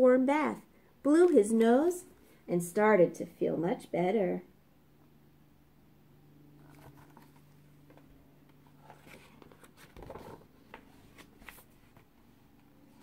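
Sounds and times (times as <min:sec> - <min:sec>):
low steady hum: 0:00.0 - 0:13.0
book pages turning: 0:06.6 - 0:12.1.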